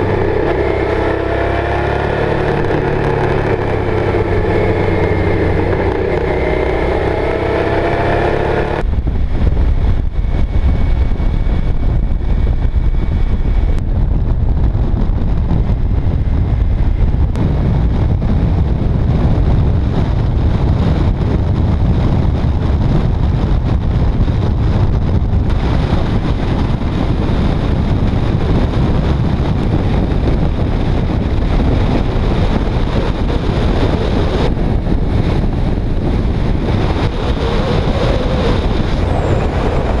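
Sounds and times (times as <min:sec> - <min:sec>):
road and motorcycle noise: 0:00.0 - 0:40.0
wind rush on microphone: 0:00.0 - 0:40.0.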